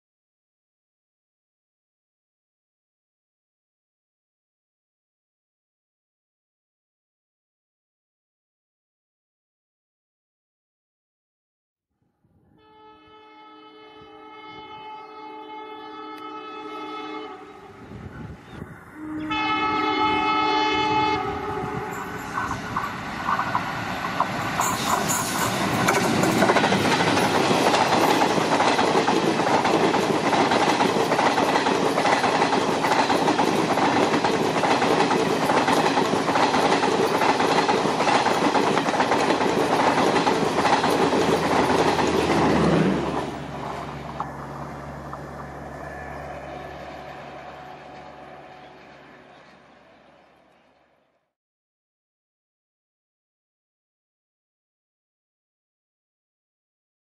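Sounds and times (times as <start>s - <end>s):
locomotive horn blasts: 12.6s - 18.0s, 19.0s - 22.2s, 45.9s - 49.3s
train wheels clattering: 22.0s - 45.3s.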